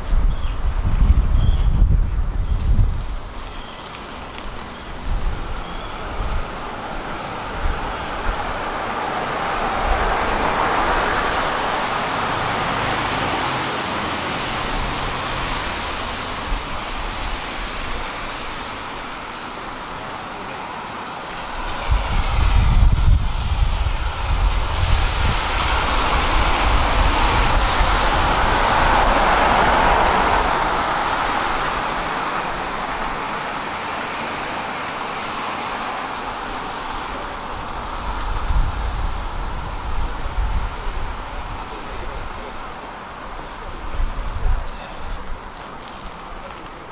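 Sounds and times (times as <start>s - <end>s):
passing traffic rushing: 0.0s - 46.9s.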